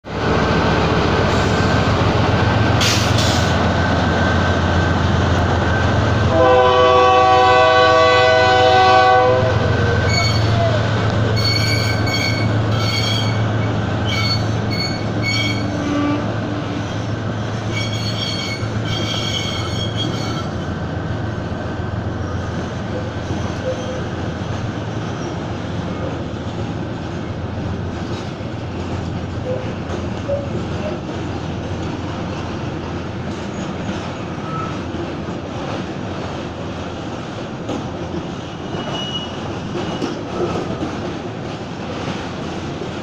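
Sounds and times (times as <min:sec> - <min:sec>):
diesel locomotives rumbling: 0:00.0 - 0:43.0
train horn blast: 0:06.3 - 0:10.6, 0:14.1 - 0:16.8
high-pitched wheel squeals: 0:10.0 - 0:16.3, 0:17.7 - 0:20.6, 0:38.6 - 0:40.2.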